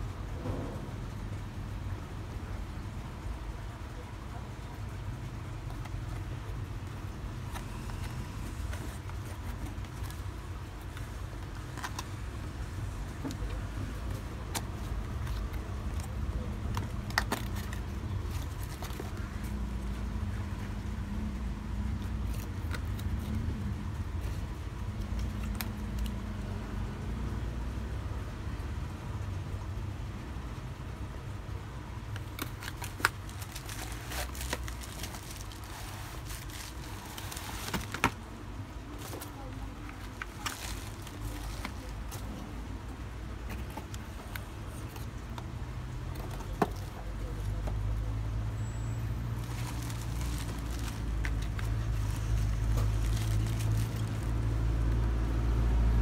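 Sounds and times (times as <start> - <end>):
cardboard box rustling: 5.6 - 12.3, 13.3 - 19.6, 32.2 - 42.4, 49.3 - 54.4
bubble wrap crinkling: 5.7 - 20.1, 32.1 - 38.3, 38.9 - 42.4, 49.2 - 55.2.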